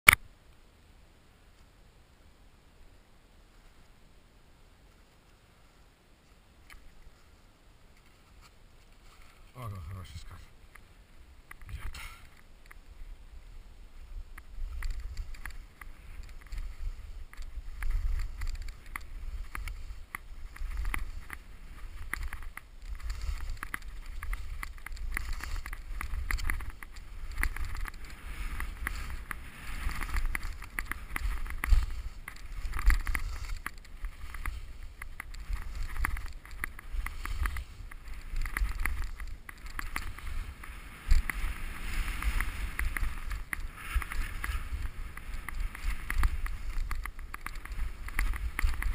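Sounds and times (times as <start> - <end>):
skis scraping over snow: 7.1 - 10.5, 12.9 - 48.9
wind rumble on microphone: 11.2 - 48.9
skis knocking on bumps: 14.2 - 48.9.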